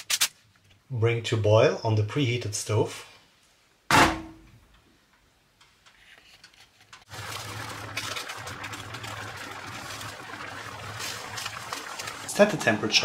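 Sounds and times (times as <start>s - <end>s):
pot boiling and bubbling: 6.9s - 13.0s.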